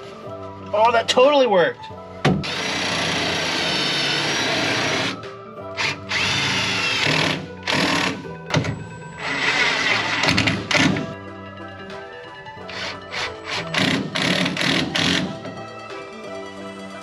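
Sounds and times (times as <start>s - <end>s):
background music: 0.0s - 17.0s
cordless drill driving screws: 5.8s - 8.2s, 9.2s - 11.0s, 12.7s - 15.3s.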